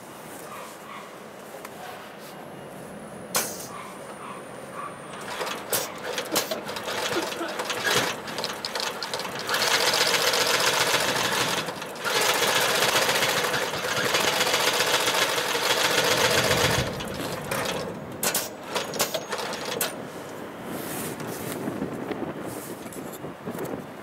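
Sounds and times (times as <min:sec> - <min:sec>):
sewing machine stitching: 0:05.1 - 0:20.0.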